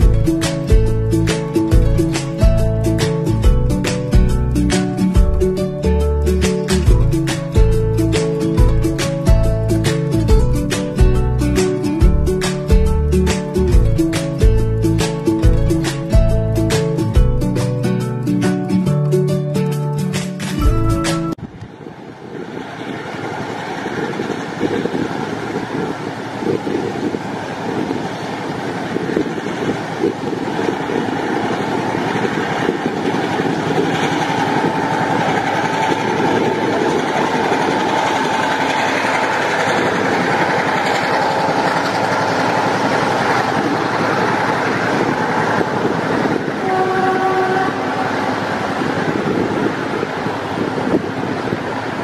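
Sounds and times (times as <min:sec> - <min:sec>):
locomotive engine running: 0:00.0 - 0:52.0
train wheels clattering on track: 0:22.5 - 0:52.0
train horn blast: 0:46.3 - 0:48.6.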